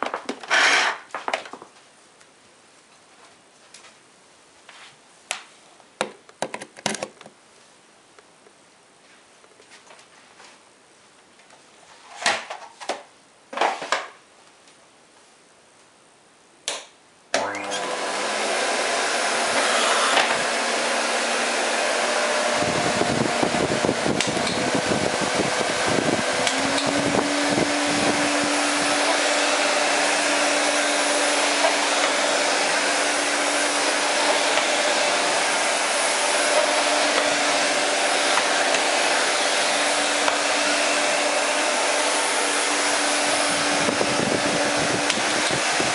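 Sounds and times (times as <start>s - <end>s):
vacuum cleaner motor running: 17.4s - 45.9s.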